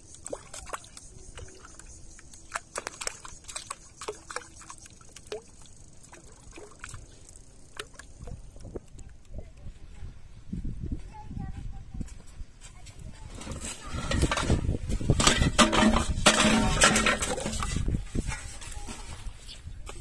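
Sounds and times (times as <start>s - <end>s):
water sloshing and splashing: 0.0s - 9.3s, 13.5s - 19.3s
water dripping: 0.0s - 9.6s.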